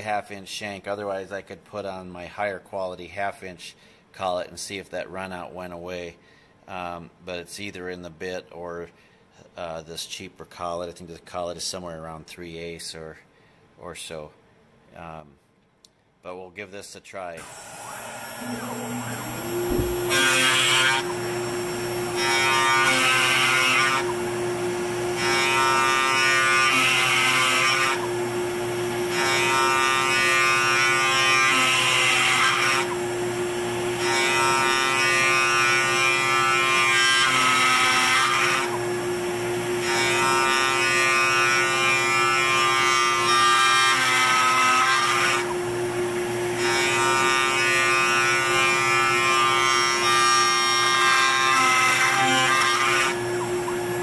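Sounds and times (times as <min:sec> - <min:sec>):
router spindle whine: 0:17.4 - 0:31.2, 0:50.4 - 0:54.0.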